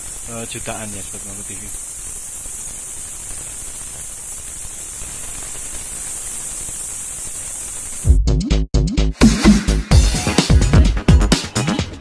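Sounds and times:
bats squeaking: 0.0s - 8.1s
music with heavy beat: 8.0s - 12.0s.

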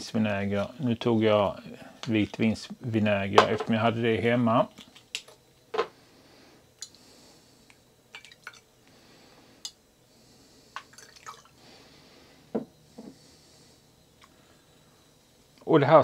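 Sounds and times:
vinegar pouring and dripping: 10.9s - 11.5s.

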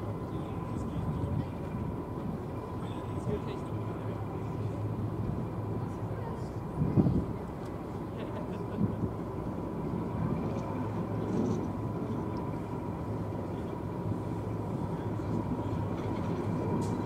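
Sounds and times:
diesel engine humming: 0.0s - 17.0s
thin steady whine: 0.0s - 17.0s.

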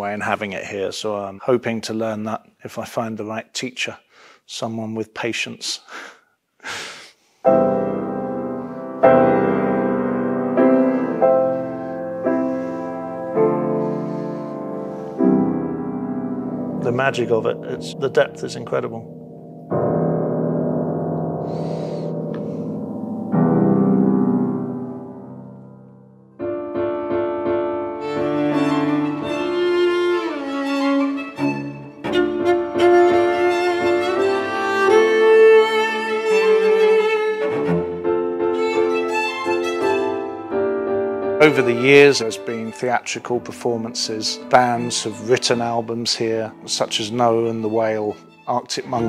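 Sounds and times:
piano chords ringing: 7.5s - 49.0s
string quartet playing: 28.0s - 40.7s, 41.4s - 49.0s.

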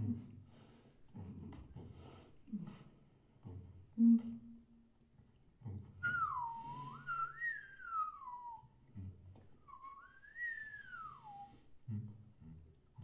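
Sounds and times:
person whistling gliding phrases: 6.0s - 8.8s, 9.6s - 11.7s.

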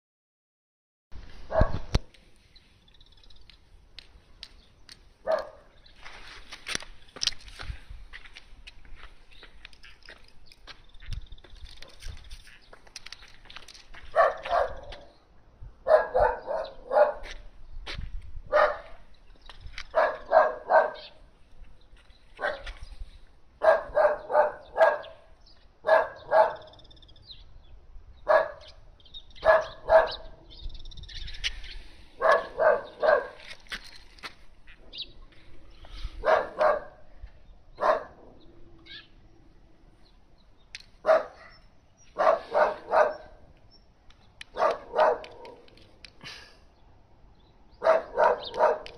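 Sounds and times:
dog barking: 1.5s - 1.9s, 5.2s - 5.7s, 14.1s - 15.1s, 15.8s - 17.4s, 18.5s - 19.0s, 19.9s - 21.2s, 22.4s - 22.8s, 23.6s - 26.7s, 28.3s - 28.7s, 29.4s - 30.4s, 32.2s - 33.4s, 36.2s - 37.0s, 37.8s - 38.3s, 41.0s - 41.6s, 42.2s - 43.4s, 44.5s - 45.7s, 47.8s - 48.9s.

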